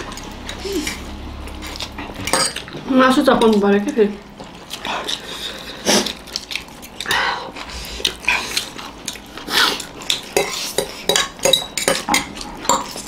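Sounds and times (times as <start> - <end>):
forks clinking on plates: 2.2 - 2.8, 10.4 - 13.0
slurping noodles: 4.8 - 6.3.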